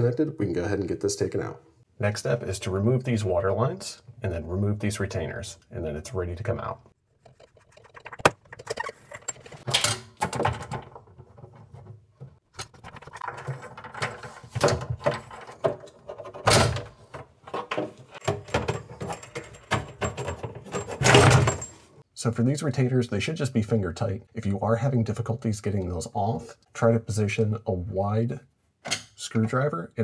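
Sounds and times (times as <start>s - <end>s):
metal and plastic parts clinking: 8.0s - 11.9s, 12.6s - 21.9s.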